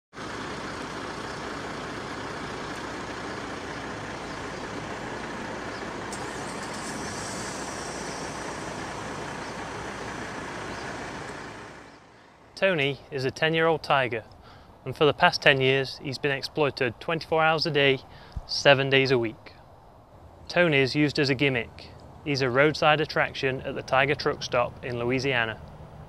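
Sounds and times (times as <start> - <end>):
traffic rumble and hiss: 0.1 - 26.0
higher hiss: 2.7 - 12.2.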